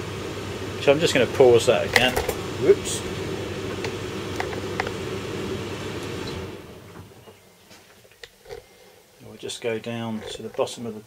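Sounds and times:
tumble dryer running: 0.0s - 7.2s.

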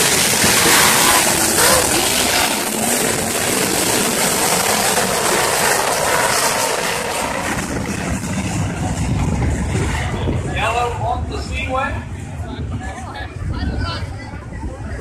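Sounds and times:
racing car engines: 0.0s - 13.3s.

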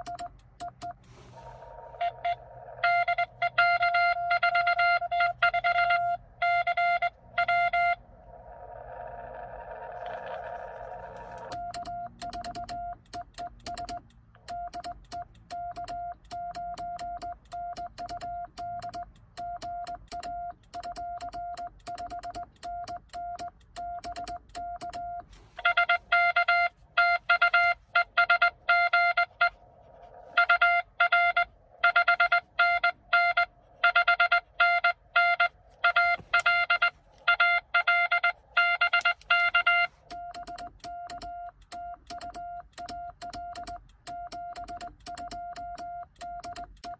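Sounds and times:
morse key contacts clicking: 0.0s - 1.1s, 11.5s - 27.0s, 38.1s - 46.9s
morse code sidetone: 0.0s - 8.0s, 10.2s - 46.9s
buzzy morse over radio: 1.0s - 8.1s, 25.3s - 40.1s.

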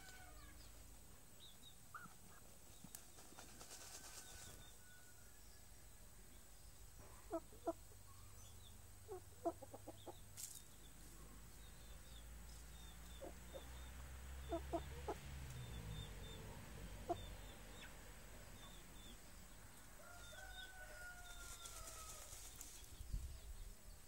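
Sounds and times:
chicken clucking: 7.1s - 7.8s, 9.1s - 10.2s, 14.4s - 15.2s, 17.0s - 17.9s.

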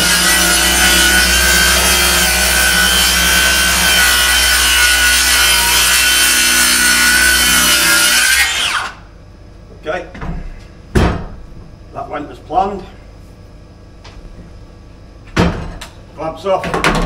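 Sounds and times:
circular saw cutting wood: 0.0s - 9.0s.

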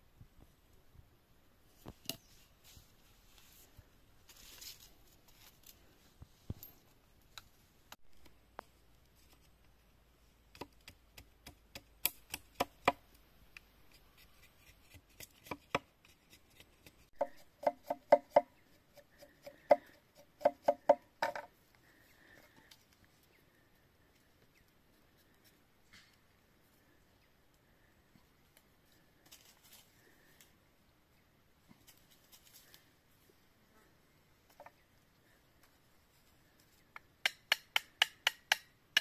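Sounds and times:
machete striking bamboo: 37.2s - 39.0s.

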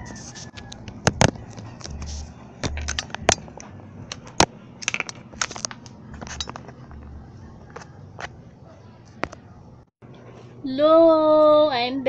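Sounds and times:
sharp clicks and knocks: 0.5s - 7.1s.

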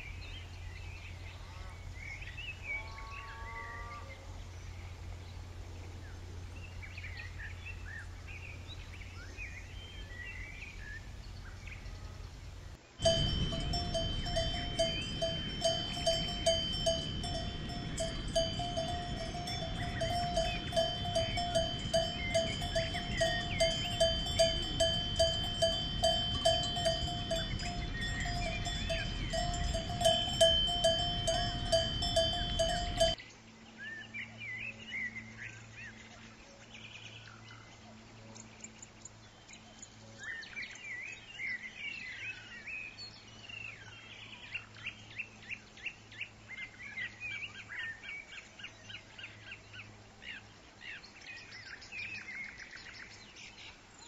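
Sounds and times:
birds chirping: 6.6s - 33.2s
low hum: 11.0s - 33.2s
cow bell ringing: 13.0s - 33.2s.

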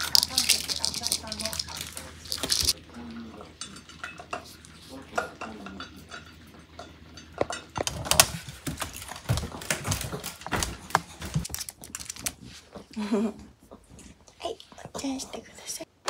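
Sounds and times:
dog crunching kibble in bowl: 0.0s - 2.8s, 7.8s - 12.6s.

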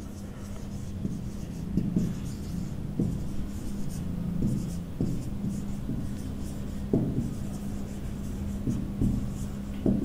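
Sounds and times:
marker scratching on whiteboard: 0.0s - 10.0s
pen knocking on board: 6.9s - 7.4s.

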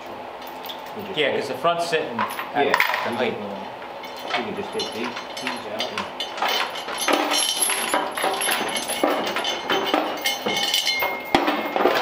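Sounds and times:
metal tools clinking and knocking: 4.0s - 12.0s.

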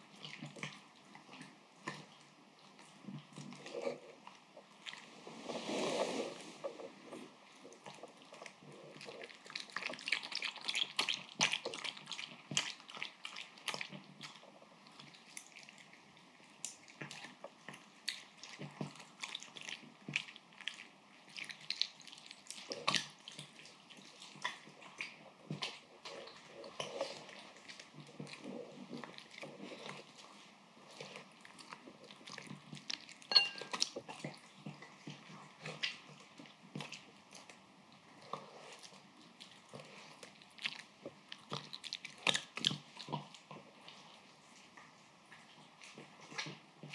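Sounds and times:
dog lapping and chewing: 0.0s - 5.1s, 7.4s - 46.9s
ceramic bowl clink: 33.3s - 33.8s.

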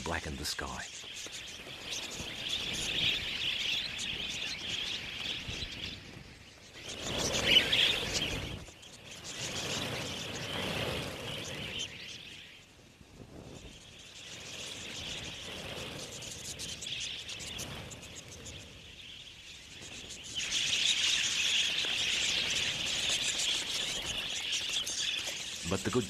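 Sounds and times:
budgerigars chattering: 20.4s - 26.0s.

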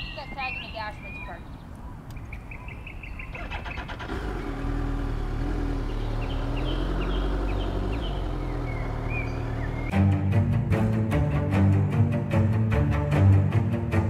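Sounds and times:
birds chirping faintly: 0.0s - 9.9s
motorcycle engine running: 3.4s - 9.9s.

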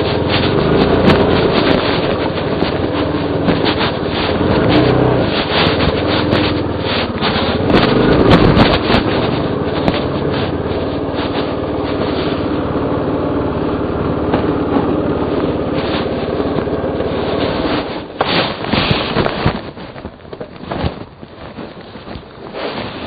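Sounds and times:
scrapes and sharp knocks: 0.0s - 12.6s
dirt bike engine running: 0.0s - 23.0s.

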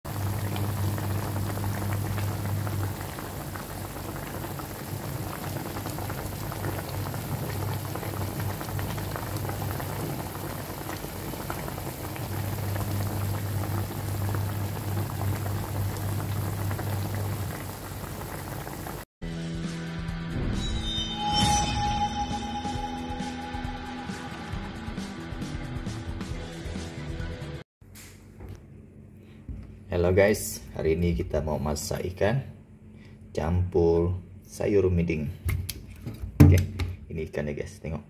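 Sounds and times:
soup boiling and bubbling: 0.1s - 19.1s.

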